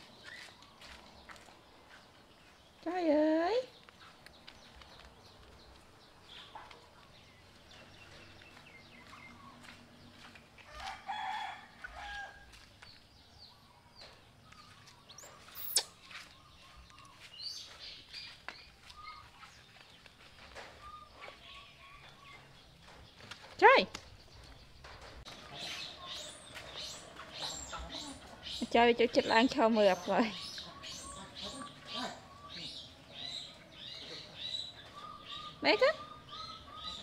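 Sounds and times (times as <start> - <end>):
animal squeaks and chirps: 15.2 - 16.1.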